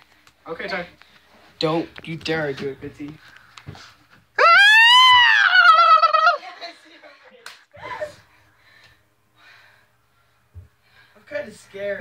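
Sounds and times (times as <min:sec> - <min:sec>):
person squealing: 0:04.4 - 0:06.4.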